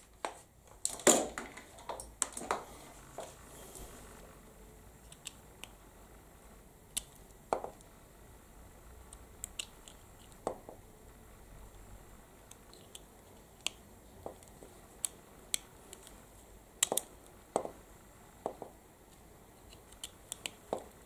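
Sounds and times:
wires rustling: 0:00.0 - 0:04.3.

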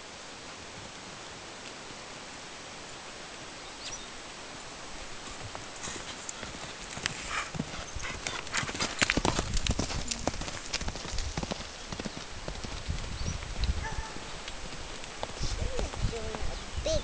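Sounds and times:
horse hoofbeats on dirt: 0:05.2 - 0:17.0.

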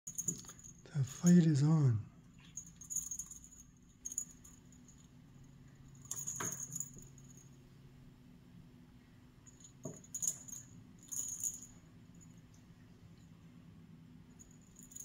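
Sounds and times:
cat toy jingling and rattling: 0:00.1 - 0:00.8, 0:02.3 - 0:07.5, 0:09.5 - 0:12.4, 0:14.4 - 0:15.0.

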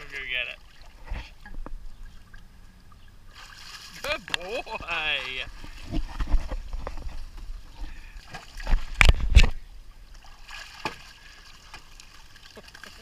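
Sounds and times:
dog splashing in pool water: 0:03.3 - 0:04.2, 0:10.2 - 0:13.0.

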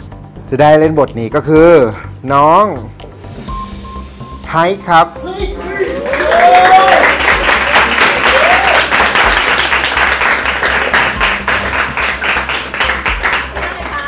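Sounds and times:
people applauding: 0:05.8 - 0:14.0.

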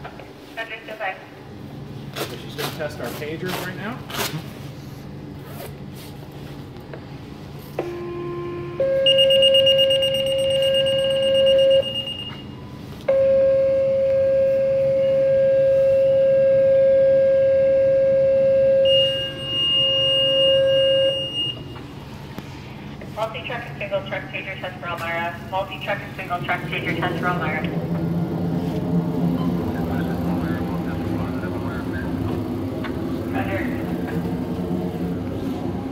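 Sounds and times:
shrill pager alert: 0:08.8 - 0:12.4, 0:13.1 - 0:21.6.

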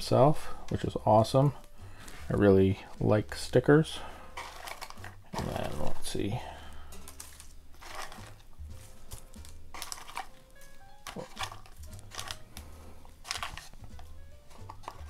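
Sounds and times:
background music: 0:00.0 - 0:15.0
paper shred rustling: 0:04.4 - 0:05.9, 0:07.0 - 0:10.4, 0:11.0 - 0:13.8.

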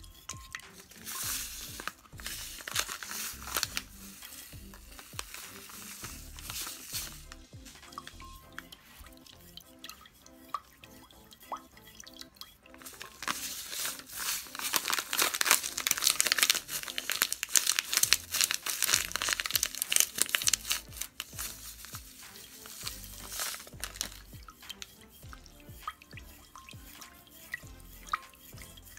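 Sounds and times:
background music with steady beat: 0:00.0 - 0:28.9
plastic packet crinkling: 0:00.3 - 0:08.2, 0:12.7 - 0:25.0.

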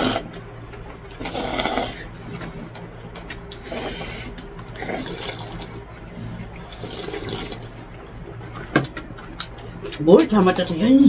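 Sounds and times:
person slurping noodles: 0:00.0 - 0:00.3, 0:01.2 - 0:02.1, 0:03.6 - 0:07.6
steady low hum: 0:00.0 - 0:11.0.

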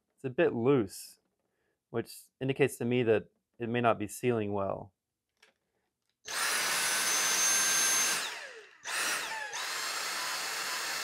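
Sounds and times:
vacuum cleaner motor whine: 0:06.3 - 0:11.0.

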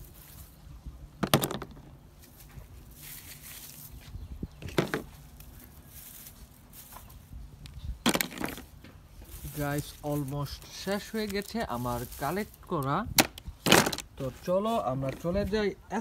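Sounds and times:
hand rustling dry straw: 0:00.0 - 0:01.1, 0:02.0 - 0:13.1, 0:14.0 - 0:15.7
plastic parts clattering into bucket: 0:13.3 - 0:14.1.

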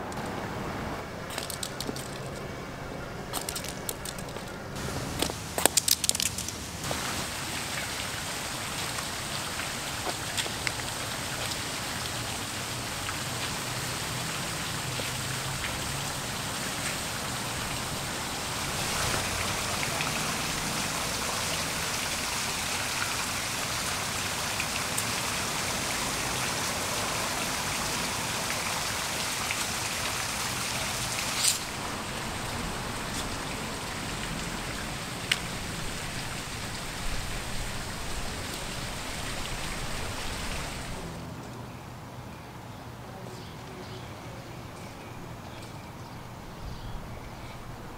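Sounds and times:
fountain water splashing: 0:03.3 - 0:41.2.

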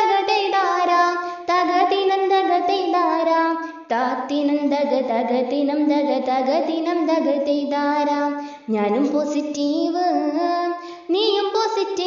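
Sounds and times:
high voice singing folk melody: 0:00.0 - 0:12.0.

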